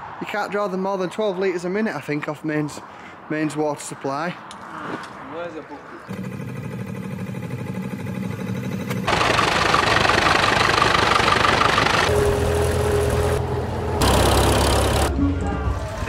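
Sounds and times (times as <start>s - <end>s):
tractor engine running: 6.1s - 15.2s
steady engine note: 6.1s - 16.0s.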